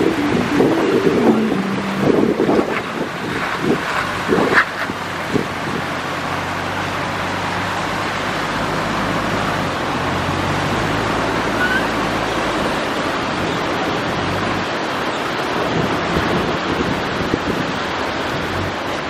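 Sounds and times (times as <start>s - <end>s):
wind on microphone: 0.0s - 6.5s
car engine running low: 0.0s - 16.7s
surf breaking: 0.1s - 6.8s.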